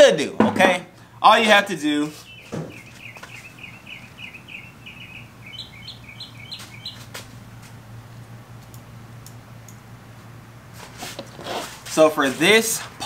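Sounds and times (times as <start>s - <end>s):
steady low hum: 0.0s - 13.0s
small bird chirping: 2.2s - 7.2s.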